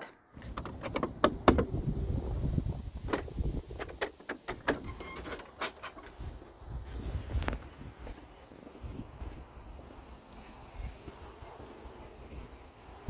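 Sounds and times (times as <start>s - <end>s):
metal gate latch clinking: 0.0s - 1.6s, 3.1s - 6.2s.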